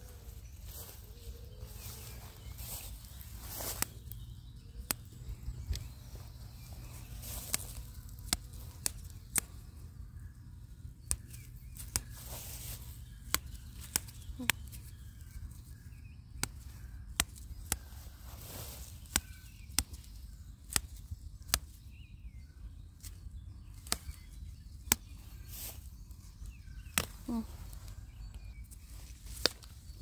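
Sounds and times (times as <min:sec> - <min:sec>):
sharp clicks: 0:03.6 - 0:06.0, 0:06.6 - 0:09.9, 0:10.9 - 0:12.2, 0:13.2 - 0:14.9, 0:16.3 - 0:17.9, 0:19.0 - 0:21.8, 0:26.9 - 0:27.4.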